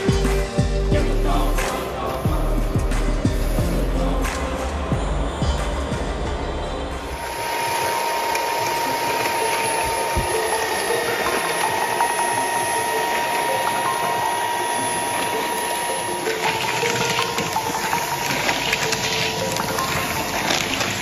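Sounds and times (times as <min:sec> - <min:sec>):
electric paddle mixer whining: 0:07.0 - 0:21.0.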